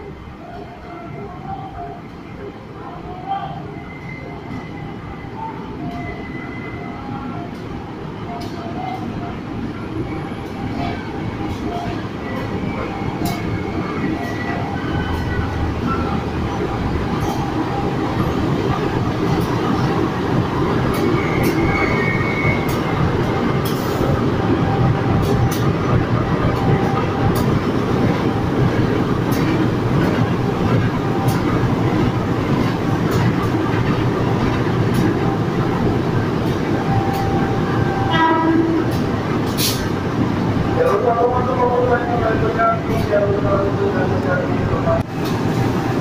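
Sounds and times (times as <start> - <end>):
diesel locomotives rumbling: 0.0 - 46.0
high squeal: 21.0 - 22.8.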